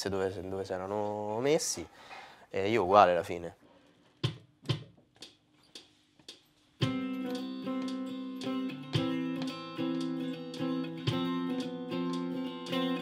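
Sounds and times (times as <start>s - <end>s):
electric guitar plucked notes: 6.8s - 13.0s
electric guitar strummed chords: 6.8s - 13.0s.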